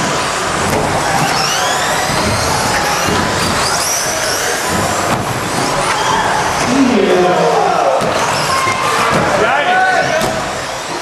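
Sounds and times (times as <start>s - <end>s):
electric rc car motors whining: 0.0s - 7.0s
steady background din: 0.0s - 11.0s.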